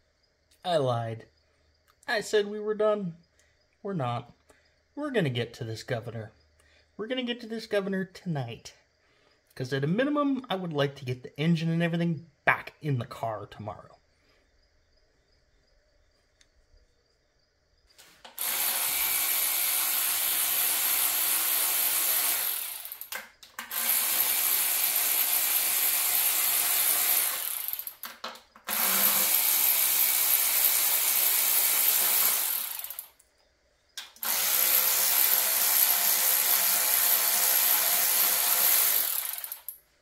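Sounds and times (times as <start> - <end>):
power ratchet spinning bolts: 18.4 - 28.0, 28.7 - 33.2, 34.2 - 39.8.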